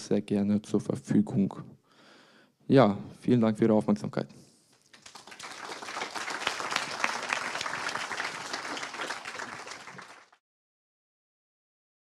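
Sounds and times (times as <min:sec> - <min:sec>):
audience applauding: 0:04.9 - 0:10.4.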